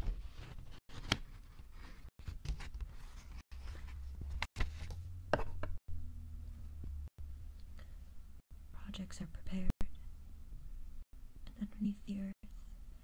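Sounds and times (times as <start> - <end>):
low steady hum: 3.6 - 13.0.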